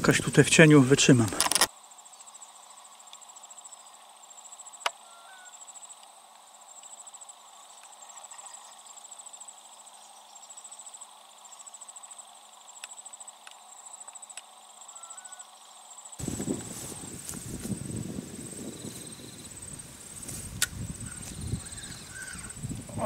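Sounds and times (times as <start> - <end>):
insects chirping in trills: 0.0 - 23.0
sharp click: 1.3 - 1.7, 20.6 - 20.8.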